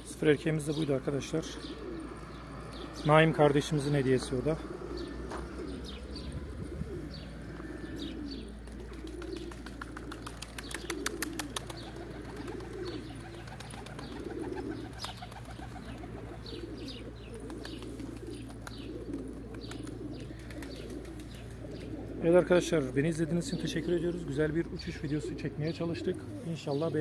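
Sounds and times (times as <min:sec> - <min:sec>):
pigeons cooing: 0:00.0 - 0:27.0
pigeon wing claps: 0:08.7 - 0:16.1, 0:17.4 - 0:21.6.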